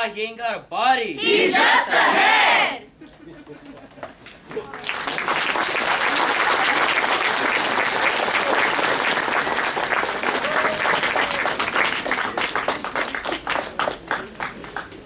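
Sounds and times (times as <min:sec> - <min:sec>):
audience applauding: 0:04.5 - 0:15.0.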